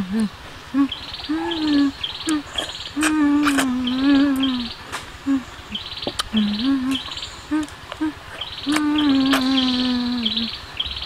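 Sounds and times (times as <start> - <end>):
woman humming mmm: 0.0 - 10.6
insects buzzing: 0.0 - 11.0
lip-smacking clicks: 2.2 - 5.1, 6.0 - 9.7.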